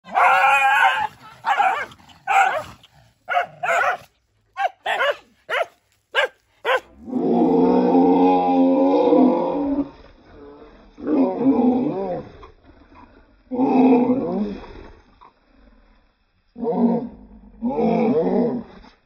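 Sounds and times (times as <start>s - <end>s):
dogs barking: 0.0s - 2.7s, 3.3s - 6.9s
dog growling: 0.0s - 8.1s.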